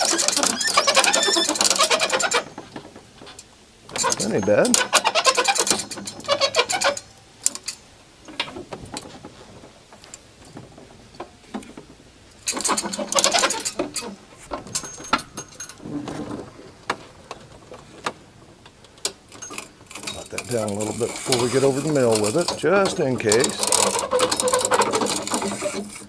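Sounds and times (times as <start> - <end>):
hand winch clicking: 0.0 - 9.1, 12.4 - 15.8, 18.8 - 26.0.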